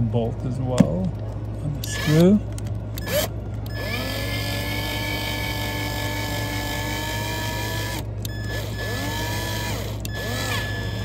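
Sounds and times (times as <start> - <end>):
cordless drill driving a screw: 1.9 - 2.2, 3.0 - 11.0.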